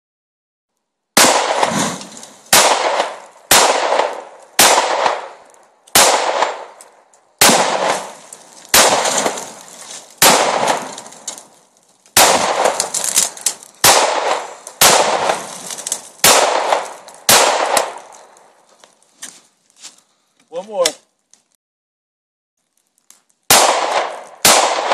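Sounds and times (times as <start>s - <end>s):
exploding targets: 1.2s - 6.8s, 7.4s - 18.3s, 23.5s - 24.9s
pistol shots echoing: 1.2s - 6.8s, 7.4s - 11.3s, 12.2s - 18.4s, 23.5s - 24.9s.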